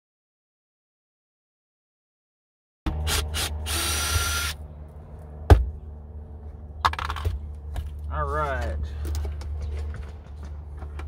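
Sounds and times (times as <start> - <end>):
low steady hum: 2.9 - 11.0
cordless drill whining: 3.1 - 4.6.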